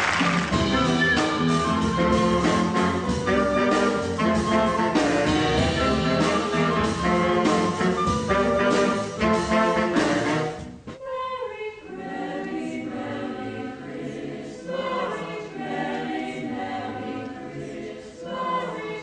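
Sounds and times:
horn section playing punchy chords: 0.0 - 10.9.

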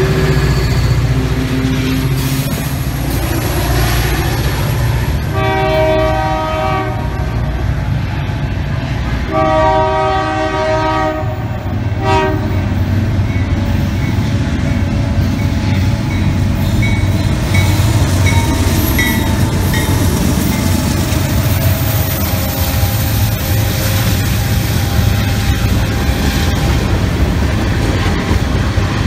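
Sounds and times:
train wheels rolling over rails: 0.0 - 9.7, 11.4 - 29.0
diesel locomotive engines rumbling: 0.0 - 29.0
locomotive horn blasts: 5.3 - 7.4, 9.2 - 12.6, 22.4 - 26.8.

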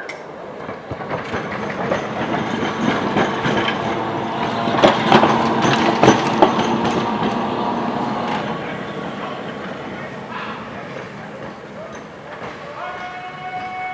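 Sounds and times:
electric tram rolling on rails: 0.0 - 13.9
sharp clacks: 0.1 - 7.5.

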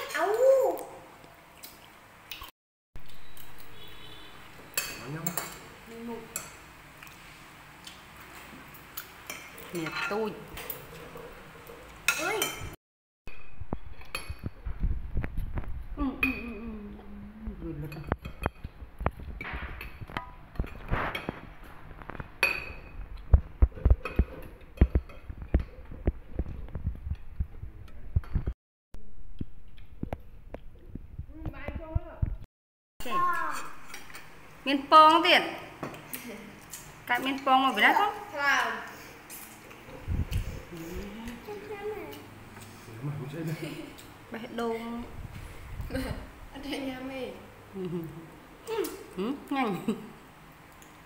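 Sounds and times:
cutlery clinking on plates: 4.7 - 5.7.

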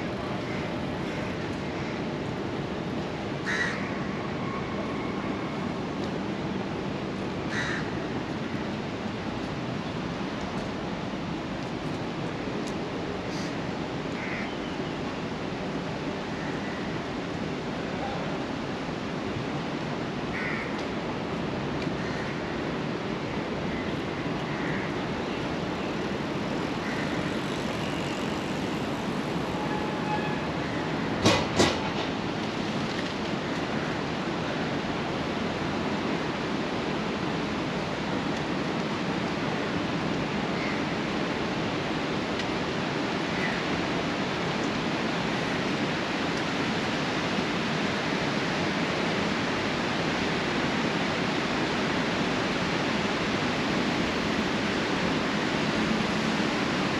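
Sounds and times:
outdoor ambient rush: 0.0 - 56.9.

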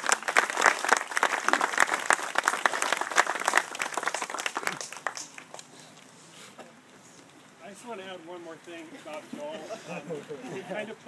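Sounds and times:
people applauding: 0.0 - 5.7.

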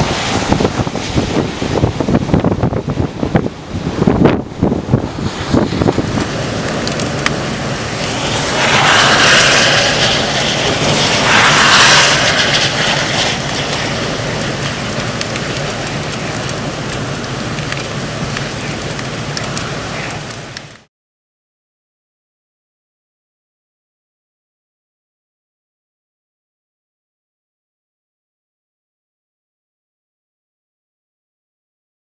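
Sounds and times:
waves breaking: 0.0 - 1.8, 4.8 - 20.4
strong wind across microphone: 0.0 - 20.4.

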